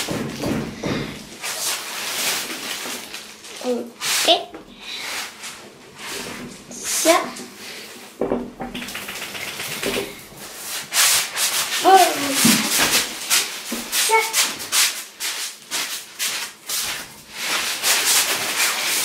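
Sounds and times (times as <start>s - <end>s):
rubbing and rustling from handling: 0.0s - 19.0s.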